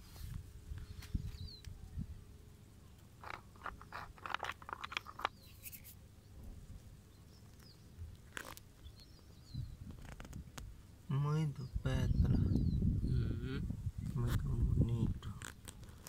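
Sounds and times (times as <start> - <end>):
light clicks and scrapes: 3.2 - 6.0.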